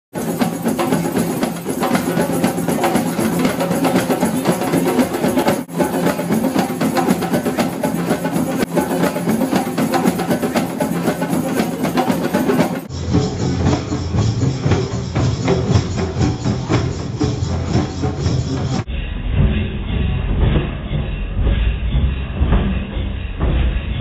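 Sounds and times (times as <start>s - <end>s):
hand drums playing together: 0.2s - 18.9s.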